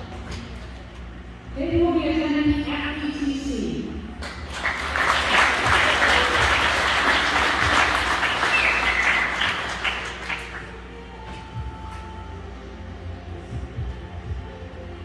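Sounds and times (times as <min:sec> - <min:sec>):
crowd applauding: 0:04.2 - 0:10.8.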